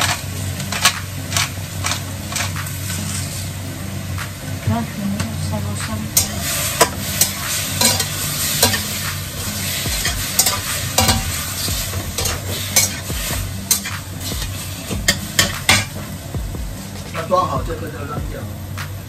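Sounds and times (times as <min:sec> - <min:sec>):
spatula scraping a pan: 0:00.0 - 0:03.6, 0:06.2 - 0:16.2
food sizzling in a pan: 0:00.0 - 0:18.8.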